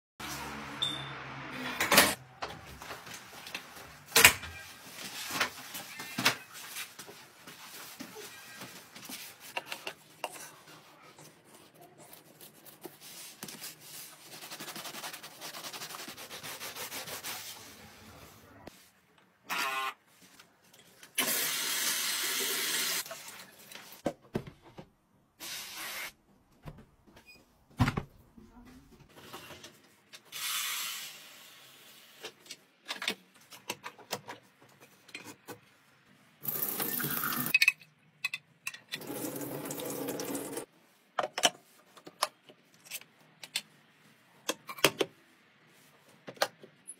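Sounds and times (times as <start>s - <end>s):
sponge scrubbing a sneaker: 11.4s - 18.2s.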